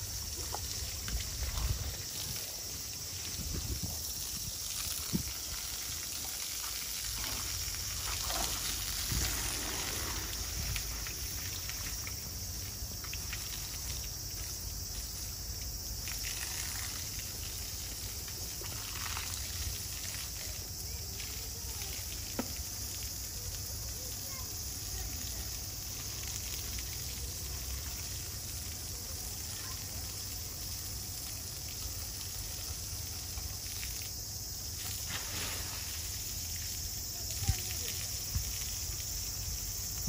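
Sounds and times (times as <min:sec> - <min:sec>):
water splashing: 0:00.0 - 0:14.5, 0:24.0 - 0:39.9
hose water spraying: 0:00.0 - 0:40.0.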